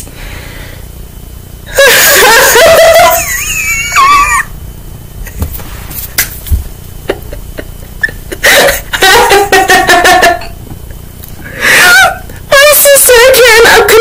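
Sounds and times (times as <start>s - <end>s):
woman giggling: 1.8s - 4.5s, 6.9s - 10.6s.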